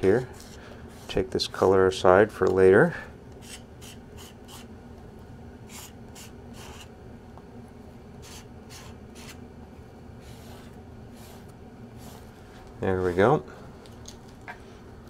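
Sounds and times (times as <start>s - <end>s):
low room hum: 0.0s - 15.0s
palette knife scraping paint: 0.1s - 1.4s, 8.2s - 9.4s.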